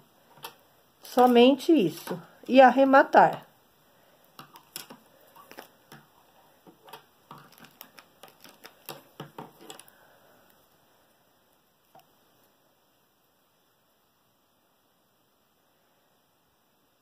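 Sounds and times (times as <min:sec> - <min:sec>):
knitting needles clicking: 0:04.4 - 0:06.0, 0:06.8 - 0:09.9.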